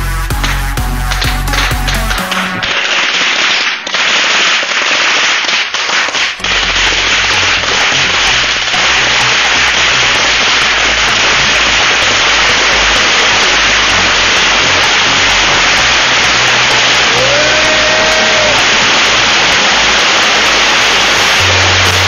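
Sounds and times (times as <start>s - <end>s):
firework rockets hissing and crackling: 0.0s - 22.0s
firework whistle rising: 8.5s - 22.0s.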